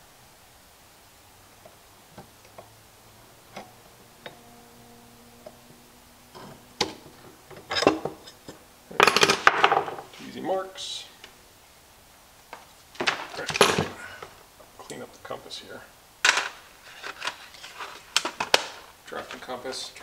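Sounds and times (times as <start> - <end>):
tools clattering on wooden bench: 13.0 - 14.0.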